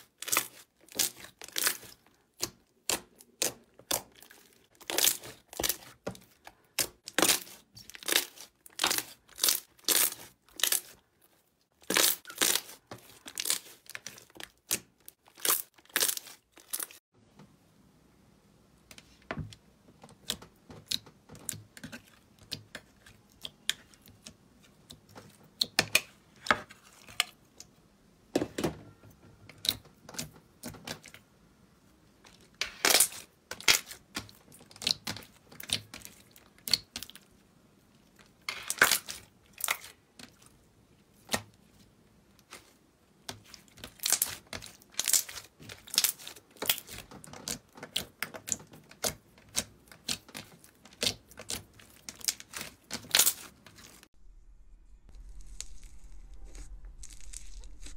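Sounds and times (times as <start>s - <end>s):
slime wet pops and crackles: 32.8s - 37.3s, 43.3s - 53.9s.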